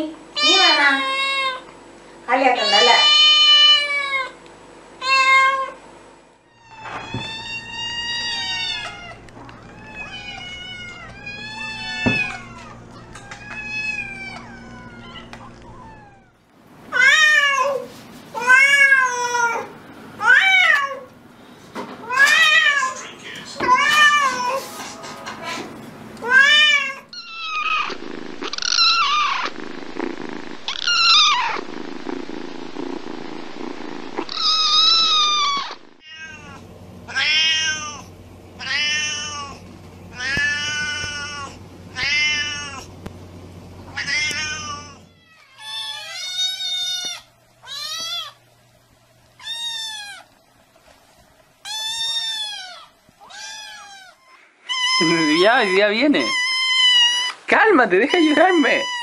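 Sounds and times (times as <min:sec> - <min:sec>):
cats meowing: 0:00.4 - 0:01.7, 0:02.6 - 0:04.4, 0:05.0 - 0:05.8, 0:06.5 - 0:21.1, 0:22.0 - 0:24.7, 0:26.2 - 0:33.0, 0:33.6 - 0:42.9, 0:43.8 - 0:48.4, 0:49.4 - 0:50.4, 0:51.6 - 0:57.4, 0:58.0 - 0:59.0
kitten meowing: 0:06.5 - 0:16.3, 0:26.2 - 0:29.5, 0:30.7 - 0:31.8, 0:34.2 - 0:42.9, 0:43.9 - 0:48.4, 0:49.4 - 0:50.3, 0:51.7 - 0:57.4, 0:58.1 - 0:59.0.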